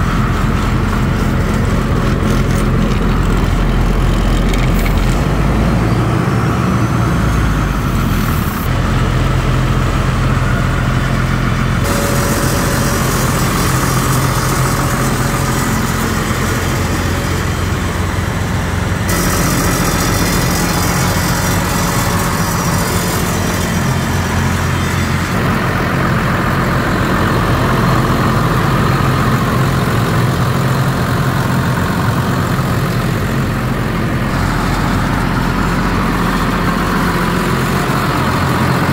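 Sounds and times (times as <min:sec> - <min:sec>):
air compressor engine running: 0:00.0 - 0:38.9.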